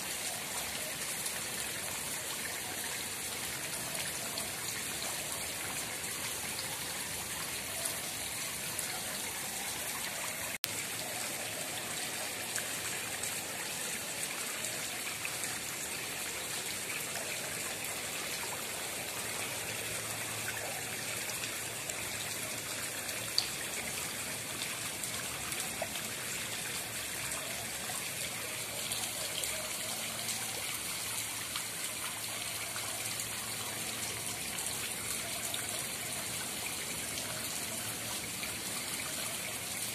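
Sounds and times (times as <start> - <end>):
pond water trickling and splashing: 0.0 - 39.9.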